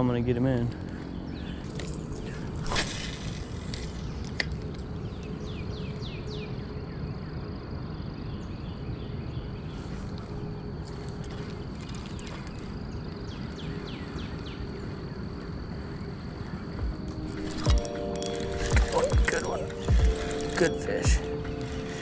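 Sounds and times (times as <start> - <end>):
bird chirping: 16.4 - 22.0.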